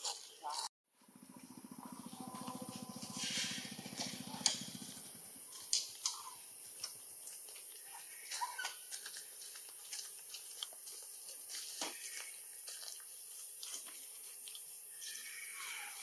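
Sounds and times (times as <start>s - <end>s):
low pulsing hum: 1.0s - 6.4s.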